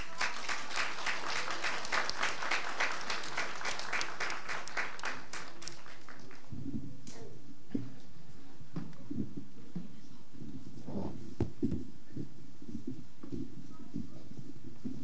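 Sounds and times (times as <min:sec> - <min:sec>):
audience clapping in time: 0:00.0 - 0:06.6.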